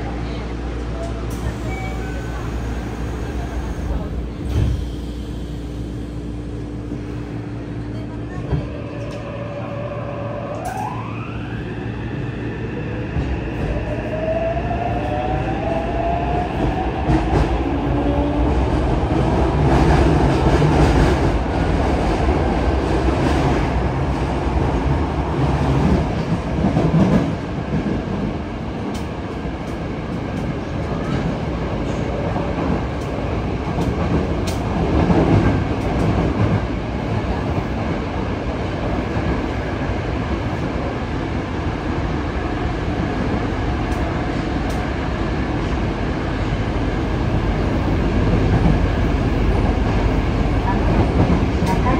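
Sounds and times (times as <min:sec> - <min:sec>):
wheels rumbling on rail: 0:00.0 - 0:51.9.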